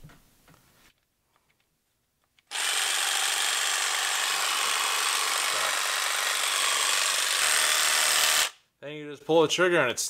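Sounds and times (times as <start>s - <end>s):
jigsaw running with no load: 2.5s - 8.6s.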